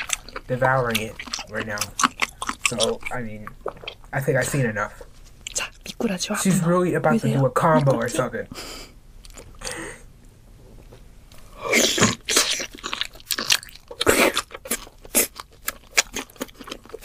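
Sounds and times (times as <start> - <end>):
woman chewing crunchy food: 0.0 - 4.7, 9.2 - 9.6, 11.7 - 17.0.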